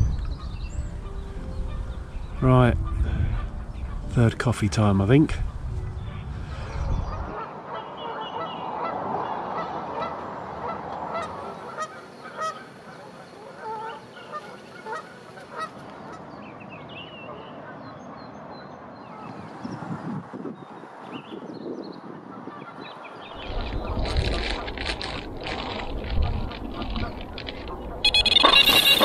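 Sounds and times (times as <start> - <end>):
geese honking: 7.3 - 16.2, 23.6 - 29.0.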